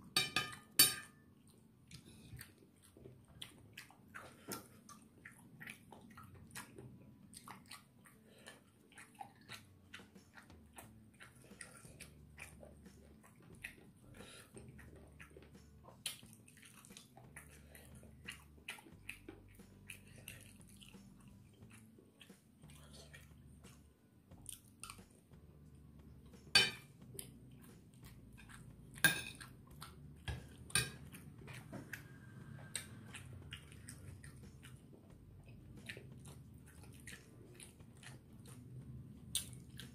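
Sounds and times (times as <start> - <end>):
metal spoon clinking on plate: 0.2 - 1.2, 29.0 - 29.4
person chewing: 1.4 - 25.3, 27.0 - 39.9.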